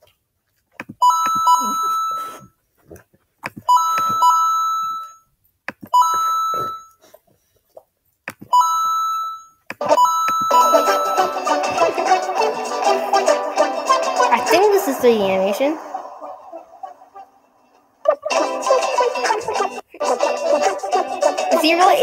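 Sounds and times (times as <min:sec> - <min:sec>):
two-note chime: 0:10.2 - 0:11.5.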